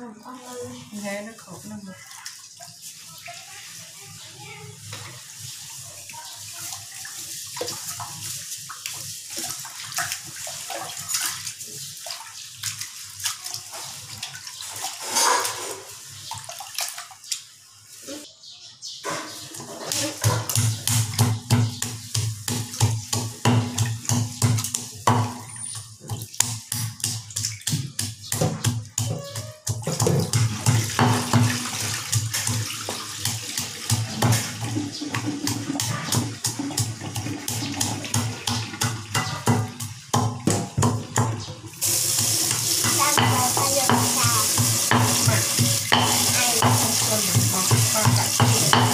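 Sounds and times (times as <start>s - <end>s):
pestle pounding in wooden mortar: 20.1s - 25.4s, 26.3s - 41.5s, 42.2s - 48.9s.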